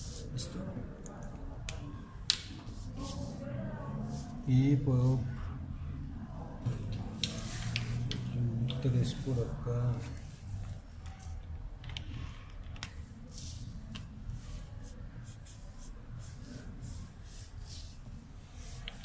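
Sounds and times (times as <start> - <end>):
marker stroking across paper: 0.0 - 0.6, 2.6 - 4.5, 7.2 - 8.1, 13.2 - 19.0.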